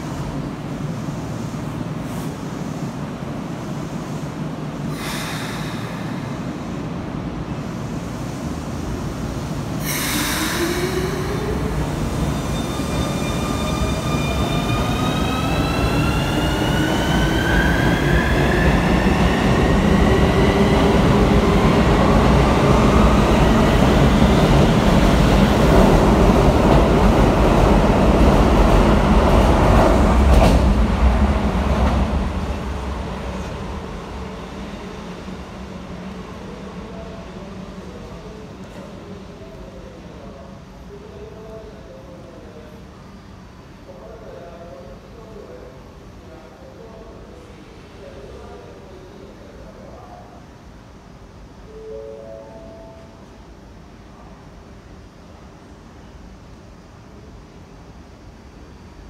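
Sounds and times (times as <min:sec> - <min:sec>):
air brake hiss: 0:04.9 - 0:06.6, 0:09.8 - 0:11.2
train wheels rumbling on rails: 0:07.6 - 0:35.0.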